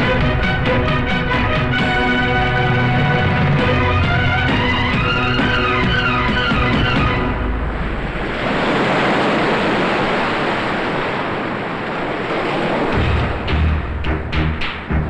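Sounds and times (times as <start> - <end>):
low drum beats: 0.0 - 7.8, 13.0 - 15.0
film music: 0.0 - 8.6, 13.0 - 15.0
waves crashing: 0.0 - 15.0.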